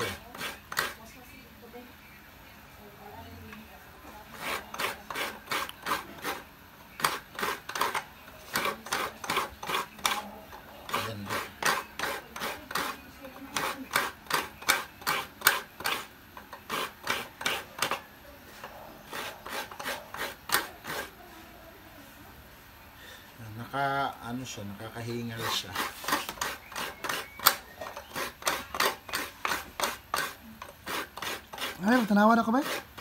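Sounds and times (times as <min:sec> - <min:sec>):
coconut scraped on metal grater: 0:00.0 - 0:01.1, 0:04.2 - 0:18.0, 0:19.0 - 0:21.2, 0:24.8 - 0:33.0.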